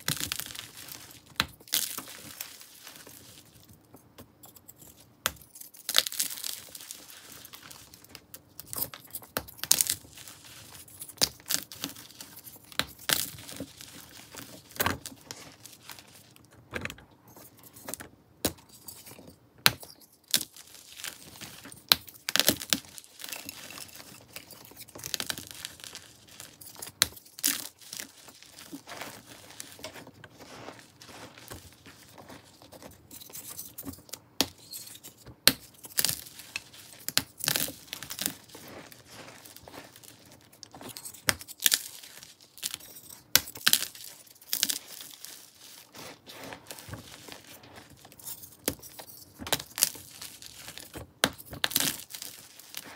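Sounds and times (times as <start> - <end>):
chalk crunching and crackling: 0.0 - 16.5, 18.6 - 52.9.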